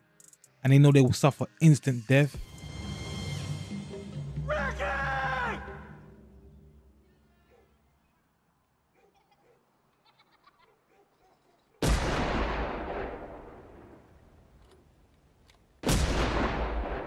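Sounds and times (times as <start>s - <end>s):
gunshots with echoing tail: 11.8s - 14.1s, 15.8s - 17.0s.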